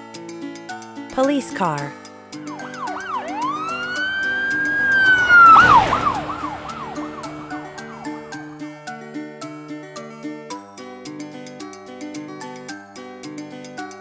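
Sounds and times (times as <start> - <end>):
light background music: 0.0 - 14.0
police siren yelping and wailing: 2.4 - 8.6
brief rushing burst: 3.4 - 8.7.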